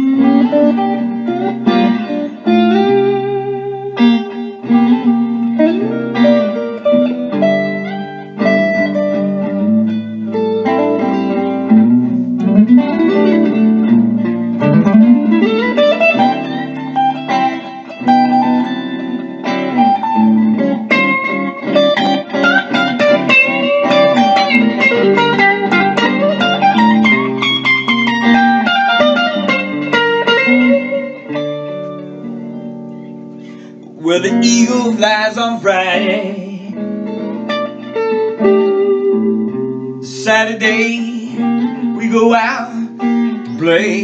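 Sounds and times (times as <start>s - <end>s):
electric guitar blues solo: 0.0s - 44.0s.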